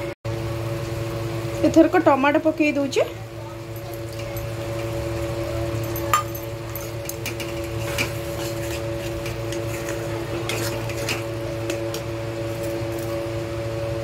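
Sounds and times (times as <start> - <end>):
metal spatula scraping a pan: 7.2 - 13.1.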